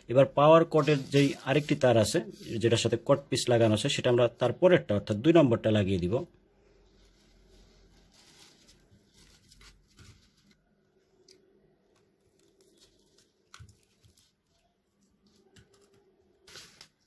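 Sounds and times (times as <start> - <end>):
wires clicking and rustling: 11.2 - 17.0.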